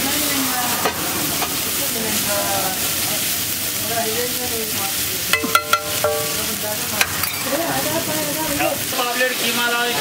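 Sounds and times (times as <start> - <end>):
food sizzling in oil: 0.0 - 10.0
spatula clanking on griddle: 5.3 - 8.7
spatula scraping griddle: 6.0 - 8.6.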